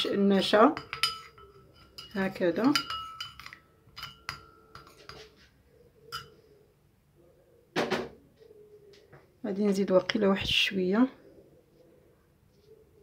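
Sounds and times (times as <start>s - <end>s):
metal spoon clinking ceramic dish: 0.7s - 5.3s, 6.1s - 6.4s.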